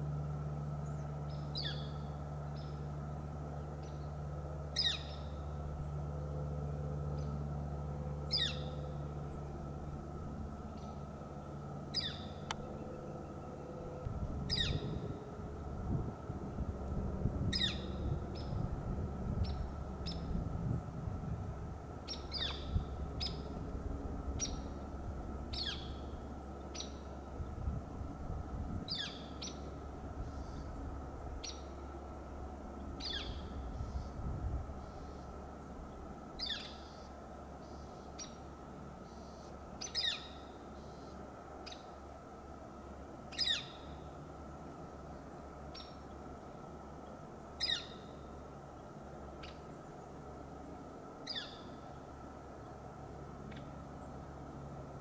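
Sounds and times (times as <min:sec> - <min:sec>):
bird downward-slurred call: 0:00.8 - 0:02.8, 0:04.7 - 0:05.4, 0:08.3 - 0:09.0, 0:11.9 - 0:15.2, 0:17.4 - 0:18.6, 0:25.5 - 0:26.2, 0:39.0 - 0:41.9, 0:43.3 - 0:44.1, 0:47.6 - 0:48.2.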